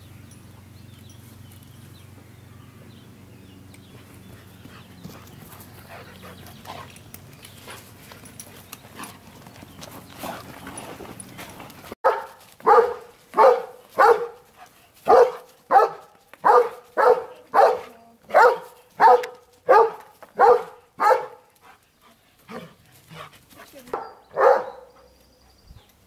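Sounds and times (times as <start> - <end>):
dog barking: 12.0 - 21.5, 23.9 - 25.0.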